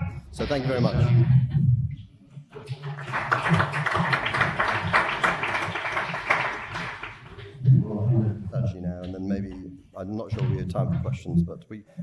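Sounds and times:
audience applauding: 2.6 - 7.6.

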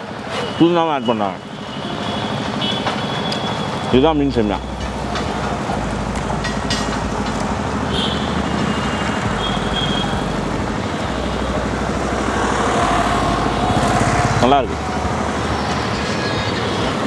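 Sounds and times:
busy road traffic: 0.0 - 17.0
low rumble: 9.2 - 16.2.

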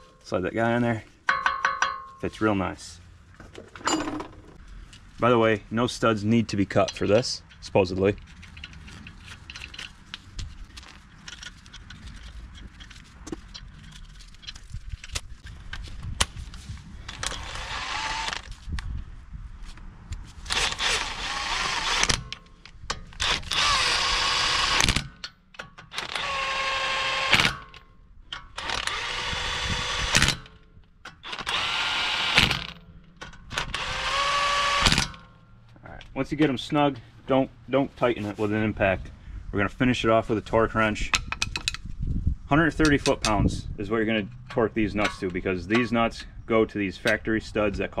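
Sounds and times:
impact wrench whining: 3.6 - 4.6, 17.1 - 18.5, 20.5 - 22.4, 23.0 - 25.2, 25.8 - 27.7, 28.4 - 35.4.

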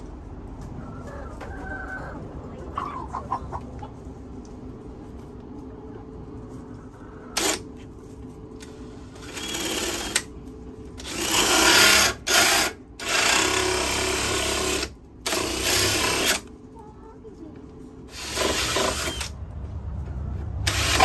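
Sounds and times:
cordless drill cutting wood: 7.4 - 7.6, 9.2 - 10.3, 11.0 - 16.5, 18.1 - 19.4, 20.6 - 21.0.

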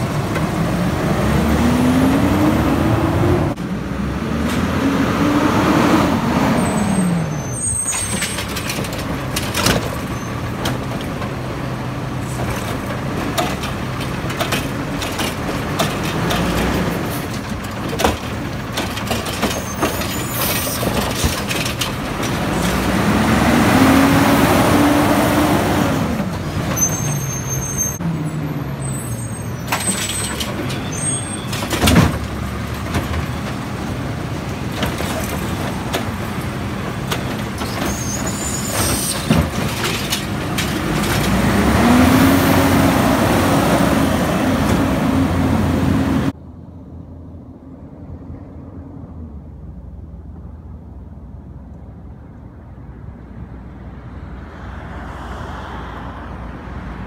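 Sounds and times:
diesel engine running and revving: 0.0 - 46.4
air-brake squeals: 6.5 - 8.8, 10.0 - 10.5, 19.3 - 21.4, 26.6 - 31.9, 37.2 - 40.7
lifting arm dumping cart: 6.6 - 28.0, 28.8 - 46.3.

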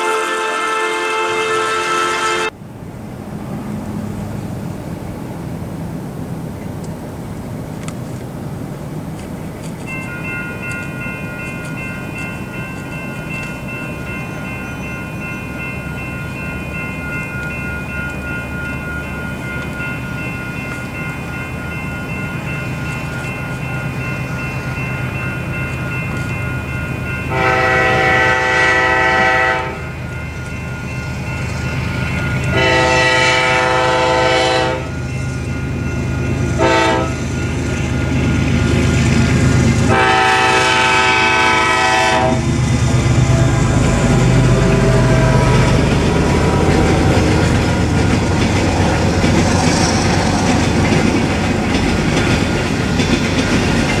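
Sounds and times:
locomotive air horn: 0.0 - 2.6, 27.3 - 30.0, 32.5 - 34.9, 36.6 - 37.2, 39.9 - 42.5
locomotive rumbling past: 0.0 - 54.0
crossing bell ringing: 9.4 - 54.0
freight cars clattering over rails: 43.7 - 54.0.

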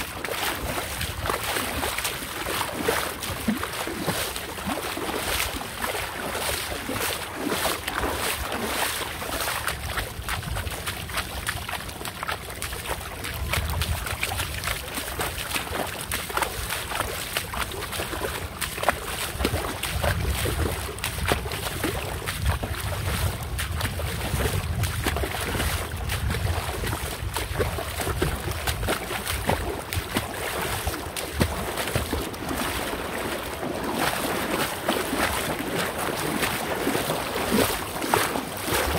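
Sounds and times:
water splashing and sloshing: 0.0 - 38.9
wind on microphone: 9.1 - 11.5, 13.1 - 15.5, 19.3 - 32.6.

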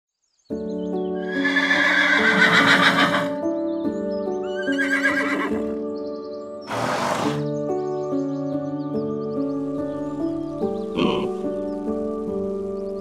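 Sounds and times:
background music: 0.5 - 13.0
horse whinnying: 1.2 - 3.4, 4.5 - 5.8, 6.7 - 7.5.

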